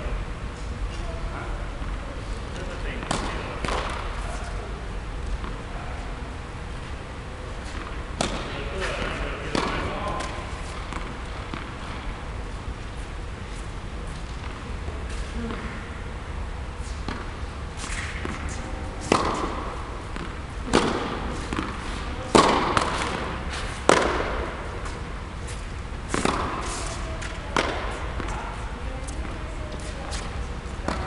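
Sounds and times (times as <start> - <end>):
tennis ball struck and bouncing: 3.0 - 4.2, 7.8 - 12.0, 17.0 - 25.0, 26.1 - 28.4.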